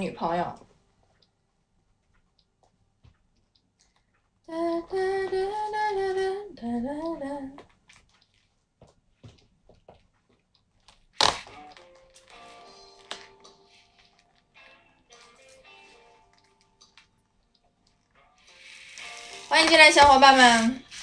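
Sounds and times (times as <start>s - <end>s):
faint music: 11.2s - 21.0s.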